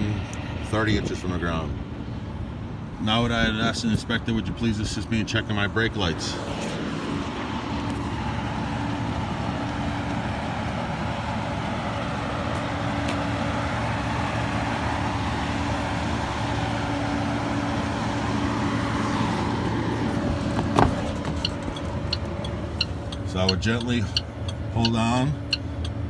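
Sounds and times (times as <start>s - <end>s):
diesel truck engine idling: 7.2s - 26.0s.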